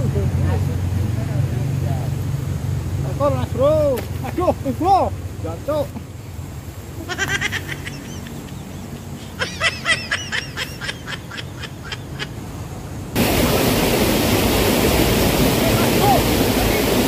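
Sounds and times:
muddy water flowing fast: 0.0s - 17.0s
rush of swollen stream: 0.0s - 17.0s
bird rapid repeated calls: 7.1s - 12.4s.

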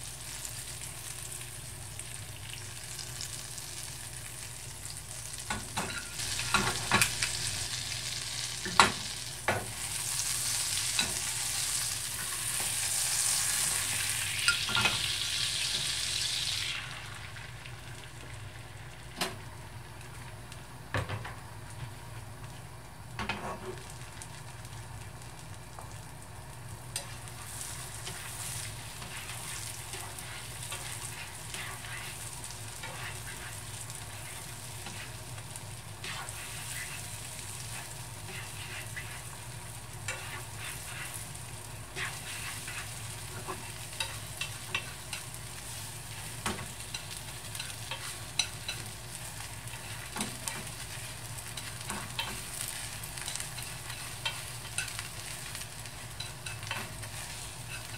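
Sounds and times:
egg sizzling in butter: 0.0s - 19.2s, 23.4s - 57.9s.

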